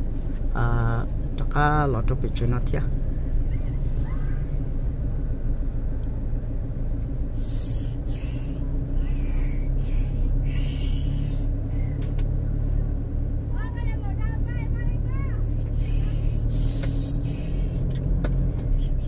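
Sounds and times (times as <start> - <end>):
car driving on dirt road: 0.0 - 19.0
short hisses: 7.3 - 12.0, 15.7 - 17.8.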